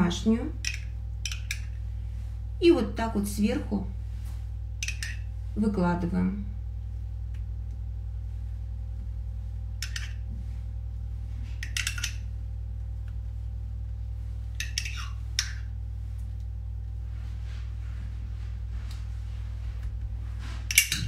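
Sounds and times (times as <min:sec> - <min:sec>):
steady low hum: 0:00.0 - 0:21.0
spoon scraping a jar: 0:14.6 - 0:15.6.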